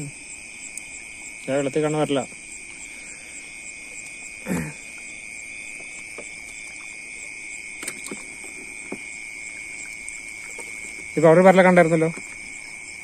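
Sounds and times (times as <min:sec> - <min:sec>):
night insects chirring: 0:00.0 - 0:13.0.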